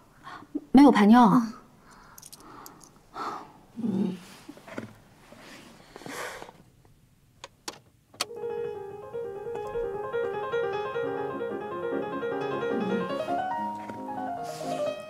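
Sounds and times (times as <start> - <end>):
soft breathy puff: 5.3 - 6.6, 14.4 - 15.0
light piano music: 8.3 - 15.0.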